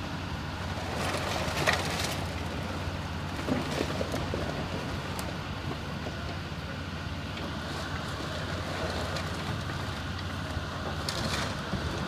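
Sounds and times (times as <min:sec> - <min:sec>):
excavator engine running: 0:00.0 - 0:12.0.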